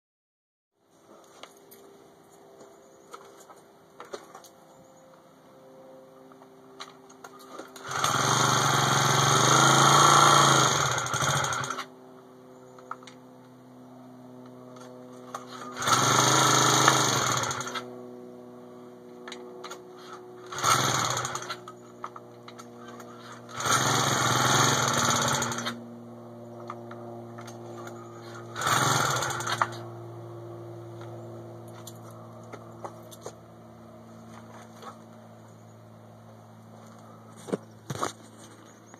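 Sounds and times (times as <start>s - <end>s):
small engine firing in bursts: 7.5s - 11.9s, 15.2s - 18.0s, 19.6s - 25.9s, 27.4s - 29.9s.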